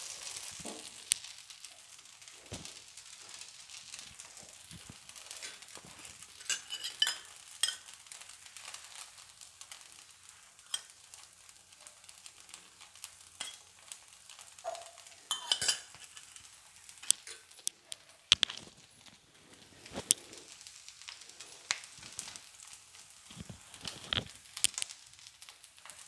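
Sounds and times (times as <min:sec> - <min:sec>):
batter sizzling on hot griddle: 0:00.0 - 0:26.0
crackles: 0:00.0 - 0:26.0
steel spoon clinking: 0:06.4 - 0:08.0, 0:10.7 - 0:11.0, 0:13.4 - 0:13.7, 0:14.7 - 0:17.4.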